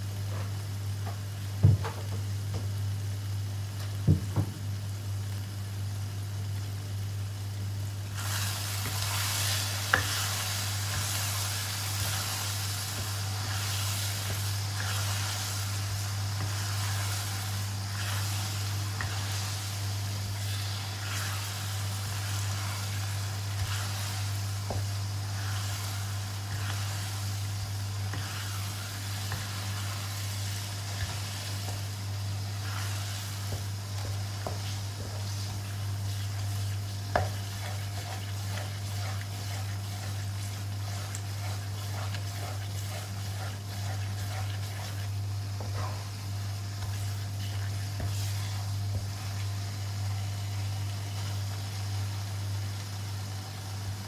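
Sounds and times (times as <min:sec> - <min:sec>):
steady low hum: 0:00.0 - 0:53.9
sauce sizzling in a wok: 0:00.0 - 0:54.0
spatula stirring and scraping: 0:08.2 - 0:49.5.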